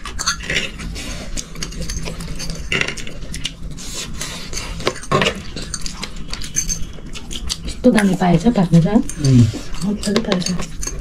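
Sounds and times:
cutlery clinking on plates: 9.1 - 11.0.

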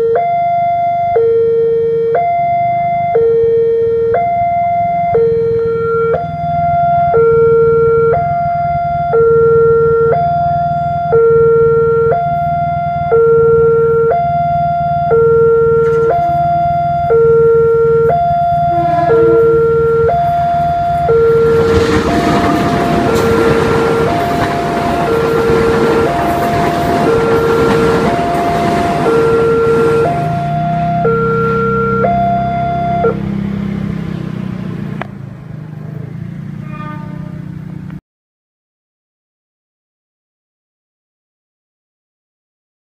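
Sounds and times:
two-tone crossing alarm: 0.0 - 34.0
passenger train passing: 14.6 - 37.8.

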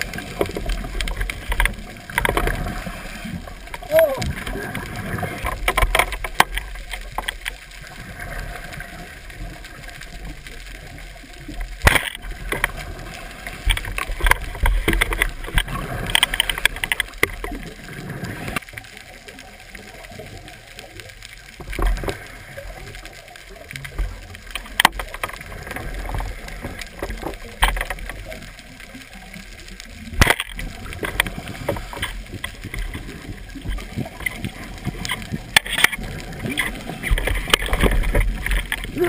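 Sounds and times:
muffled underwater rumble: 0.0 - 39.0
clicks and knocks: 5.4 - 7.6, 11.8 - 12.8, 24.5 - 25.4
sharp crack: 11.7 - 12.8.

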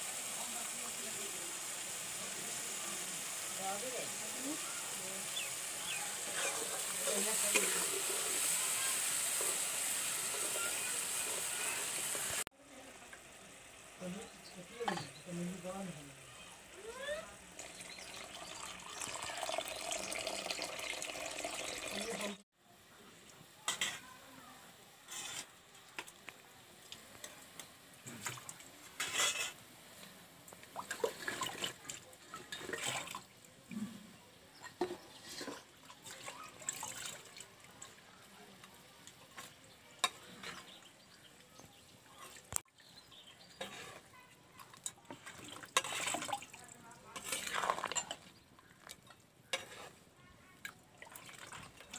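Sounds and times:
water pouring into a pan: 0.0 - 12.4, 17.4 - 22.4, 30.4 - 33.5, 34.8 - 42.8, 43.5 - 49.7, 50.6 - 51.9
spatula scraping a steel pan: 6.2 - 8.4, 25.1 - 25.5, 29.0 - 29.6, 43.5 - 44.1, 45.7 - 46.2, 47.2 - 48.3, 49.5 - 50.0.

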